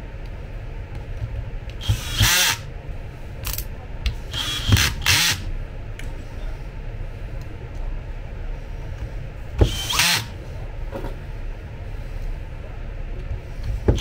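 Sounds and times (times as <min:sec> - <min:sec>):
cordless drill driving screws: 0:01.8 - 0:02.6, 0:04.3 - 0:05.4, 0:09.6 - 0:10.3.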